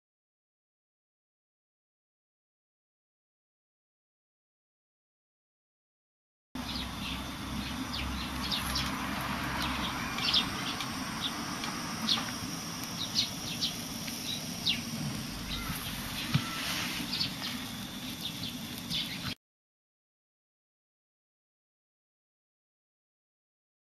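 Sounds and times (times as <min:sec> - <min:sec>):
gas stove hissing: 0:06.6 - 0:19.4
small birds chirping: 0:06.6 - 0:19.4.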